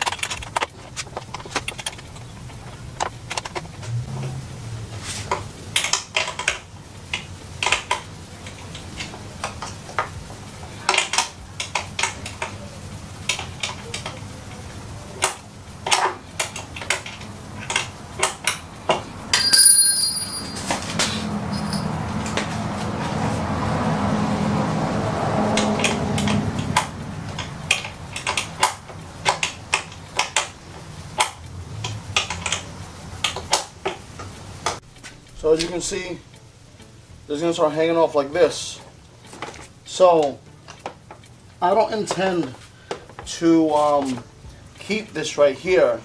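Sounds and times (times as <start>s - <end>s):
hands handling parts clicking: 0.0s - 3.9s, 25.5s - 35.8s
low hum: 0.0s - 5.7s
metal clink with ring: 19.3s - 20.7s, 21.5s - 22.0s.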